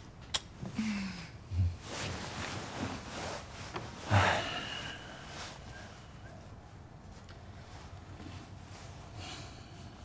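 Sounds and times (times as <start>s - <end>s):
soft breathing and exhales: 0.7s - 6.7s.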